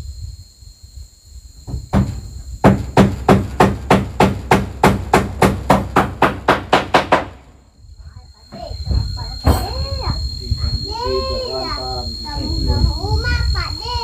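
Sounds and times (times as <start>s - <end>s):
high insect drone: 0.0s - 14.0s
hammer striking nails: 1.7s - 7.4s.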